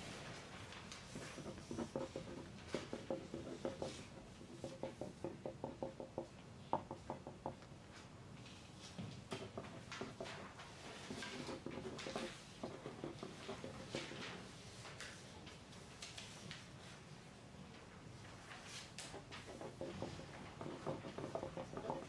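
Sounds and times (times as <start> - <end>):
pencils writing on paper: 0.9 - 6.2, 9.2 - 14.5, 19.0 - 22.0.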